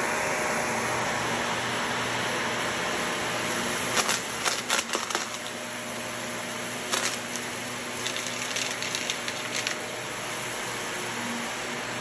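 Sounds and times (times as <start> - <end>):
vacuum cleaner running on carpet: 0.0 - 12.0
debris clicking in vacuum: 3.8 - 5.7, 6.8 - 9.9.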